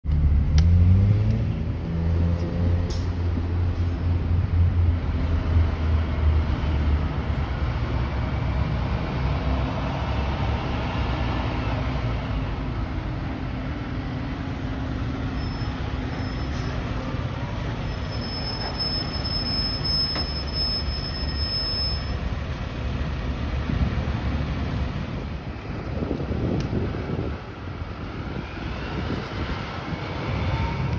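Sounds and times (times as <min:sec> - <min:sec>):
fire truck diesel engine: 0:00.1 - 0:30.9
high steady squeal: 0:15.2 - 0:22.3.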